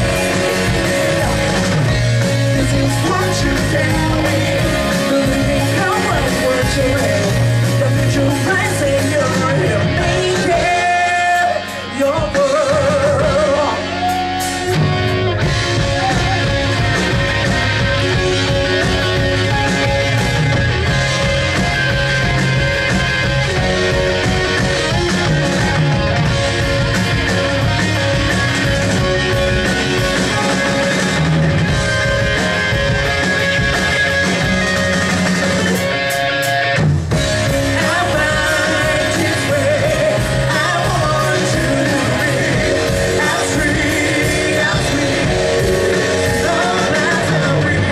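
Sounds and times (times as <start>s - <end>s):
lead vocal singing with vibrato: 0.0s - 14.9s, 37.4s - 47.9s
live rock band playing: 0.0s - 47.9s.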